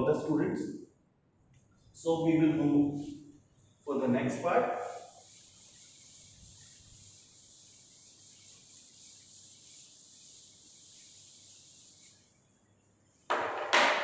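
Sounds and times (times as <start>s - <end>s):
duster wiping chalkboard: 3.9s - 12.4s.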